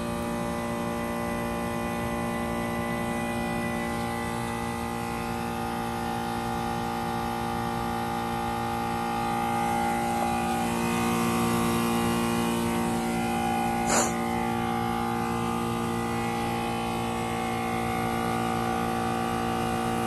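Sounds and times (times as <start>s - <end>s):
heat pump compressor hum: 0.0s - 20.0s
high whine: 12.6s - 16.6s.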